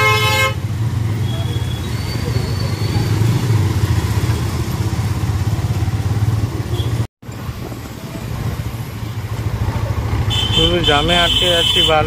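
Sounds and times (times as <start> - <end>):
road and traffic noise: 0.0 - 12.0.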